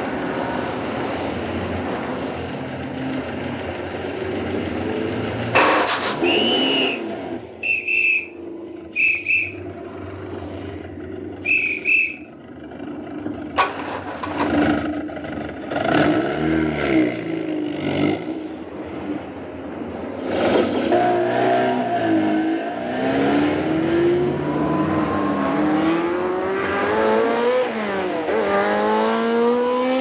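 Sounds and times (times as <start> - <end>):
car engines idling and revving: 0.0 - 30.0
short high-pitched car horn toots: 5.6 - 7.0, 7.6 - 8.4, 9.0 - 9.6, 11.4 - 12.3.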